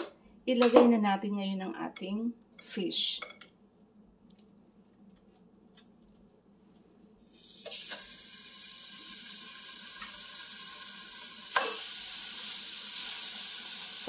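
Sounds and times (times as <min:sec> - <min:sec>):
fish sizzling in hot oil: 0:07.4 - 0:14.0.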